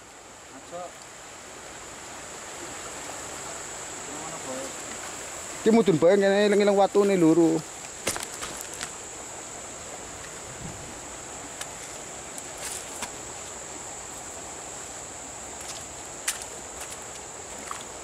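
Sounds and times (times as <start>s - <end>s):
constant hiss: 0.0s - 18.0s
high-pitched insect drone: 1.8s - 18.0s
footsteps on wet gravel: 11.6s - 18.0s.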